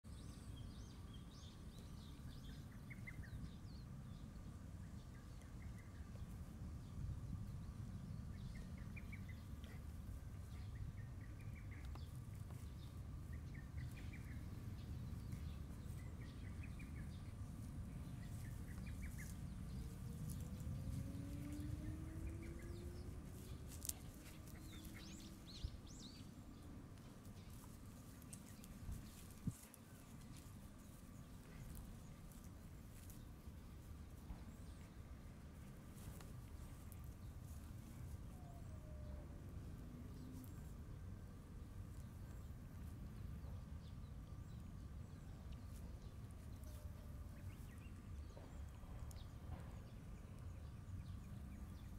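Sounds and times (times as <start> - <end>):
low steady rumble: 0.1 - 51.9
faint rising whines: 1.6 - 51.9.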